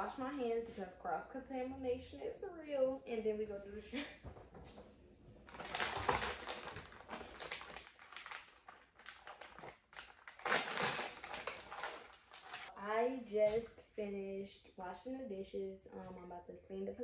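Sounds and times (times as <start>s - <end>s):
plastic bag crinkling: 5.4s - 12.7s.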